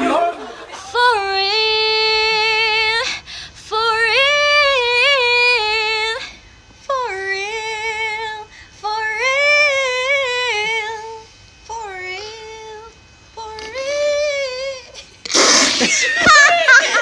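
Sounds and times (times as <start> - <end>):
woman singing with vibrato: 0.0 - 17.0.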